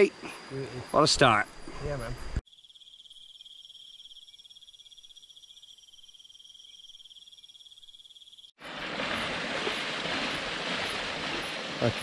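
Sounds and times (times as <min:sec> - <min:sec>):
insects trilling: 0:00.0 - 0:08.8.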